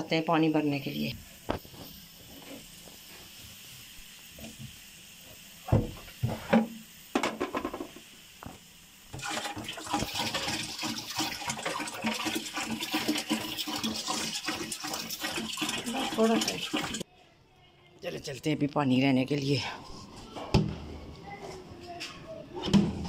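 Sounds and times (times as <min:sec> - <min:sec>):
water pouring and splashing: 0:08.4 - 0:17.1.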